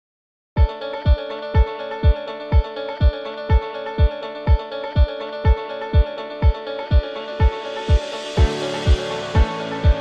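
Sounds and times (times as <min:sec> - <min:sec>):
electronic music: 0:00.6 - 0:10.0.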